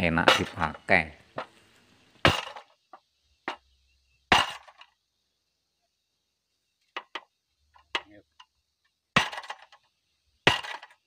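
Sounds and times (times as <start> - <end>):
stone pounding metal handlebar: 0.2 - 0.8, 2.2 - 2.7, 4.3 - 4.8, 9.2 - 9.8, 10.4 - 11.0.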